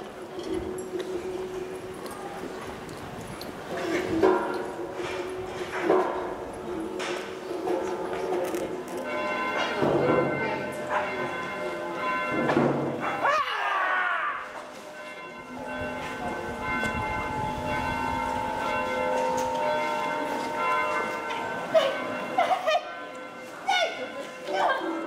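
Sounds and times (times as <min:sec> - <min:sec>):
bells ringing: 0:00.0 - 0:13.4, 0:14.4 - 0:25.0.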